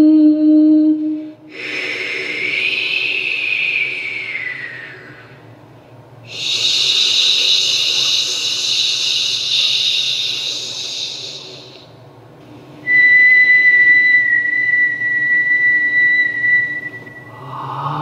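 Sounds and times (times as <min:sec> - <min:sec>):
hiss: 0:01.5 - 0:05.3, 0:06.3 - 0:11.9
steady high whistle tone: 0:01.7 - 0:05.4, 0:06.3 - 0:11.8, 0:12.8 - 0:17.7.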